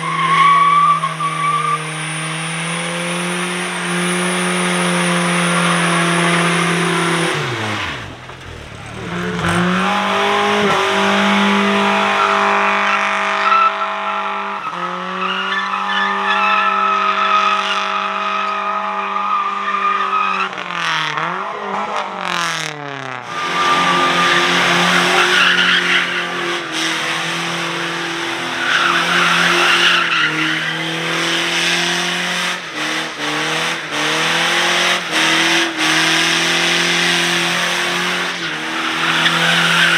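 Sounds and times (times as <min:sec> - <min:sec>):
vehicle engine running: 0:07.5 - 0:10.6.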